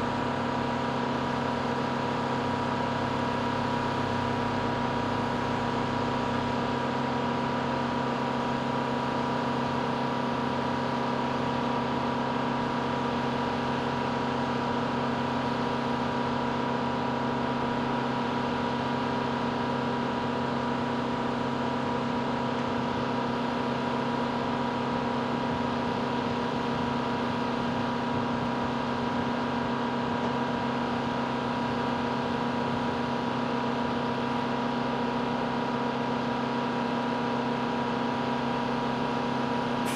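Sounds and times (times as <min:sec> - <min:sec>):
engine hum and whine: 0:00.0 - 0:39.9.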